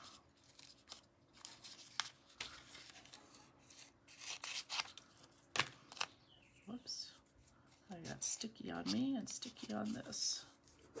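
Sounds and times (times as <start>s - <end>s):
paper rustling and crinkling: 0.0s - 6.1s.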